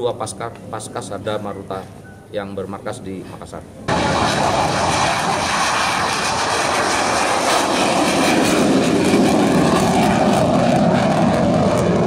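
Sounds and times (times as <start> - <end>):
jet engines roaring: 3.9 - 12.0.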